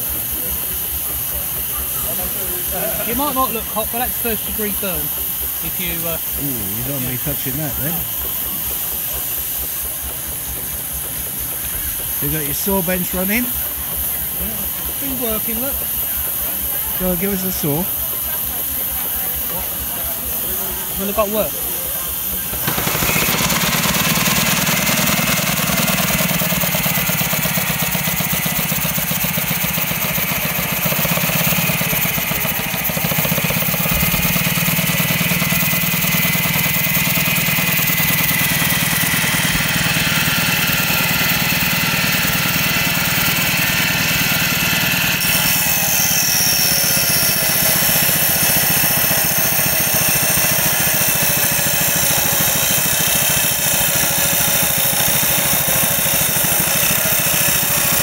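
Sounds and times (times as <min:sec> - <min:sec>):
steam engine running: 0:00.0 - 0:58.0
circular saw whine: 0:16.8 - 0:58.0.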